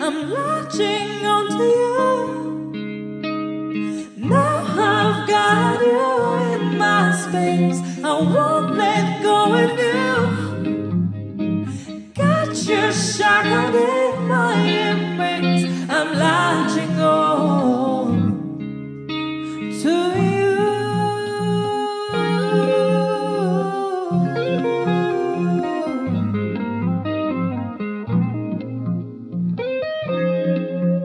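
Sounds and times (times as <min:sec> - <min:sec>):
woman singing: 0:00.0 - 0:02.7, 0:03.9 - 0:10.9, 0:11.7 - 0:18.6, 0:19.5 - 0:26.6
electric guitar: 0:00.0 - 0:31.0.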